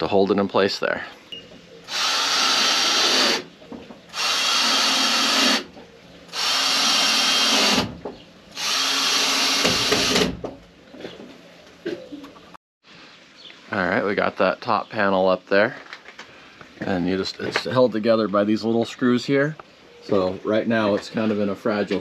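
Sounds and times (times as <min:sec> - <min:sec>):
power drill driving screws: 0:01.9 - 0:03.5, 0:04.1 - 0:05.7, 0:06.3 - 0:07.9, 0:08.6 - 0:10.4.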